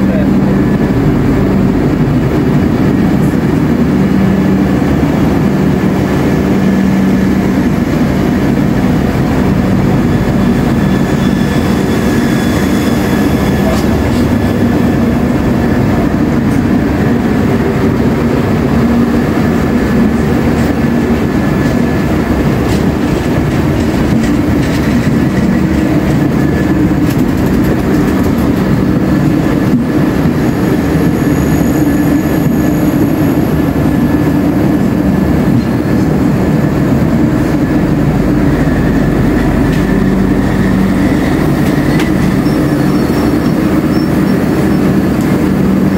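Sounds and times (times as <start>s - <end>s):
train wheels rumbling on rails: 0.0s - 45.9s
high-pitched wheel squeal: 10.2s - 13.8s, 40.5s - 45.0s.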